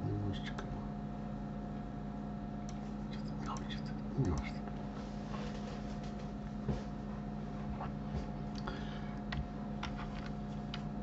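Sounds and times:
electrical hum: 0.0s - 11.0s
computer mouse clicks: 3.4s - 4.6s.

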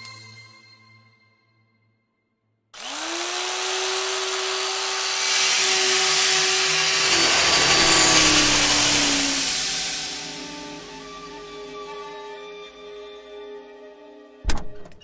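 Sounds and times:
electric knife motor buzzing: 2.8s - 11.0s.

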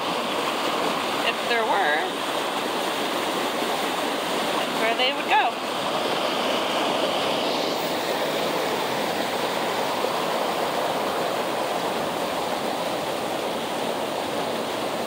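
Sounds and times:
stream water rushing: 0.0s - 15.0s.

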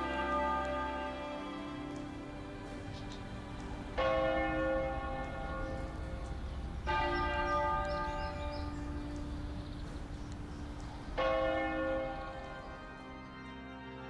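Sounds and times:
church bells ringing: 0.0s - 13.9s
low rumble: 1.5s - 11.4s.

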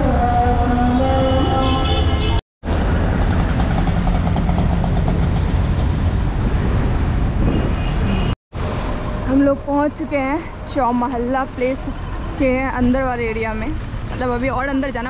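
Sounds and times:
road and traffic noise: 0.0s - 15.0s
auto-rickshaw engine running: 2.6s - 6.4s.

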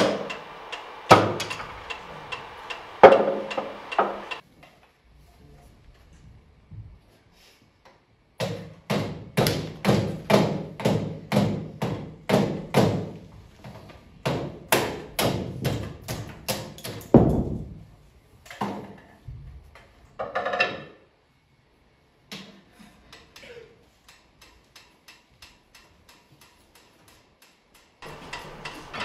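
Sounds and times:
hammer striking ringing metal: 0.0s - 4.4s.

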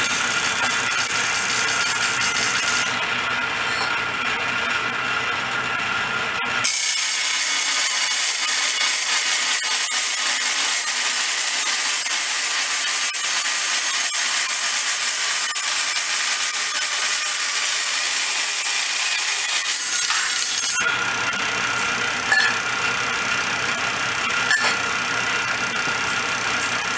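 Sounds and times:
saw blade cutting steel: 0.0s - 4.1s, 6.6s - 26.9s
table saw running: 0.0s - 26.9s.

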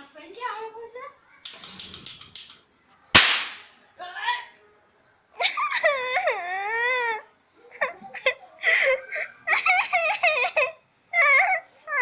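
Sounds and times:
girl crying: 5.4s - 7.2s, 7.8s - 12.0s.

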